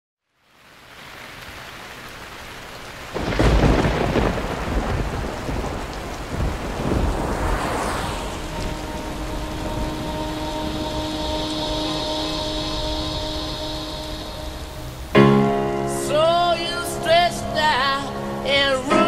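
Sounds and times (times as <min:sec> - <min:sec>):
rain hiss: 0:00.3 - 0:19.0
thunder rumbling: 0:03.1 - 0:18.0.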